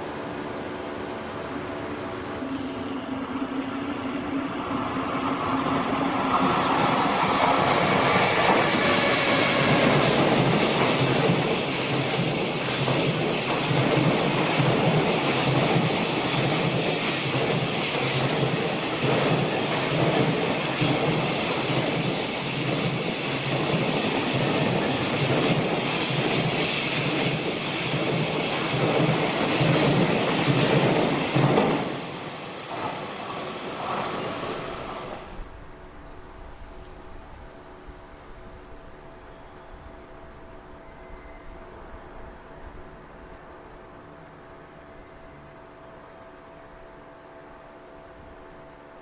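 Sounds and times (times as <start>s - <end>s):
train wheels clattering on rails: 6.1s - 35.0s.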